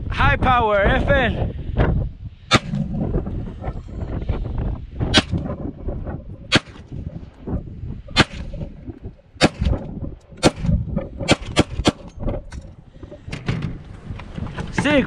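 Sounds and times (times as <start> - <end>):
pistol shots: 8.2 - 8.5.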